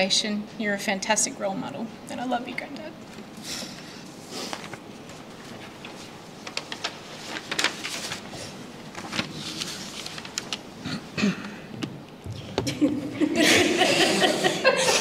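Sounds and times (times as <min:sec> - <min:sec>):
paper rustling: 0:04.3 - 0:10.7.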